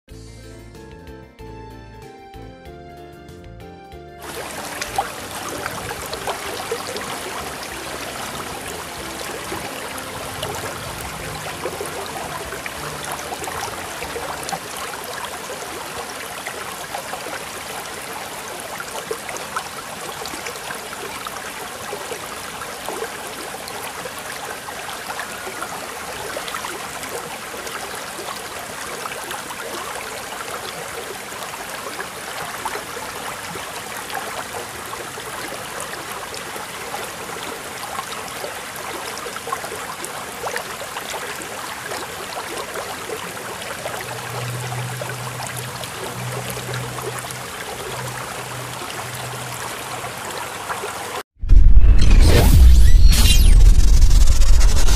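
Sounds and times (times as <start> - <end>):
waterfall splashing onto pebbles: 4.2 - 44.2.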